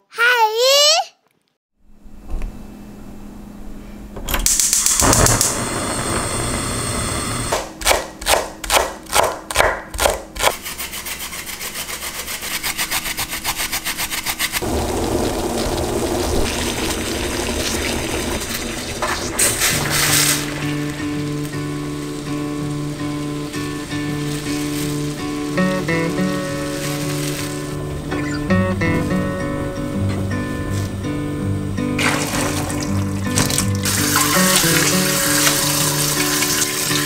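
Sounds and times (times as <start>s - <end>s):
cicadas buzzing: 14.6s - 31.7s, 32.3s - 37.0s.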